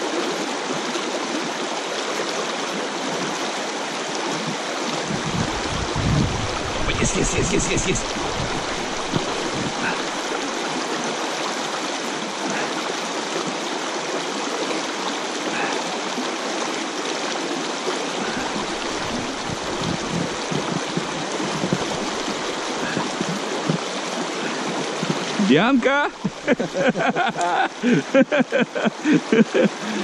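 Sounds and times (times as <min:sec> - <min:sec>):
water rushing over stones: 0:00.0 - 0:30.0
low bumps: 0:05.1 - 0:10.2, 0:18.2 - 0:23.8, 0:25.0 - 0:27.2.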